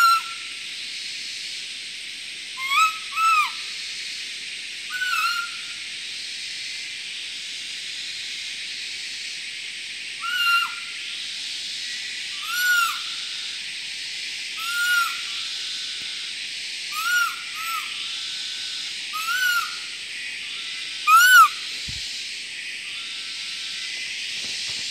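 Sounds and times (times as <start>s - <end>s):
whistled deer lure calls: 19.2s - 19.8s, 21.1s - 22.0s.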